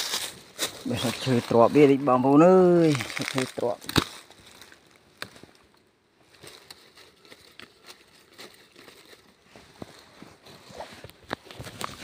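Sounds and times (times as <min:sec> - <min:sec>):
crackling of dry leaf litter: 0:00.0 - 0:12.0.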